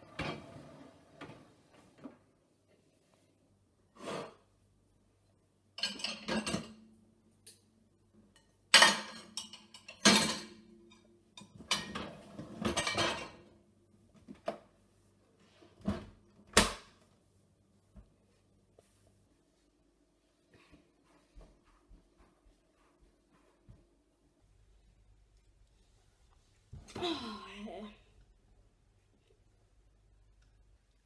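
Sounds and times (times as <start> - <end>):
ceramic plates clattering: 5.8 - 6.8, 8.8 - 10.6, 11.4 - 13.4.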